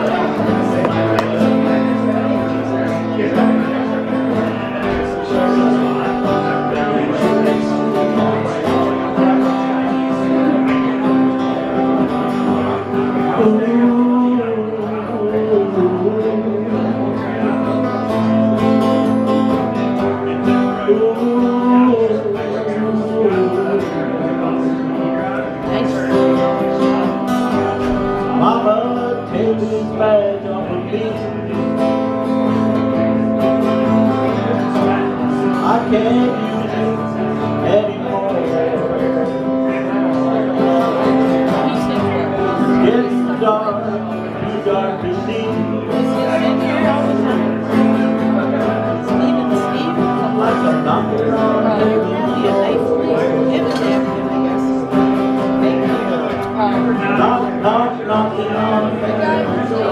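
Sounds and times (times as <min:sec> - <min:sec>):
acoustic guitars strummed: 0:00.0 - 0:59.9.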